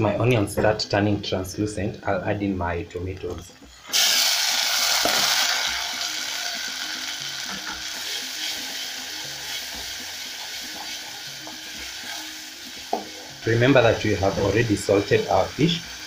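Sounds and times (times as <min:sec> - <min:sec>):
tomatoes sizzling in hot oil: 0:03.8 - 0:16.0.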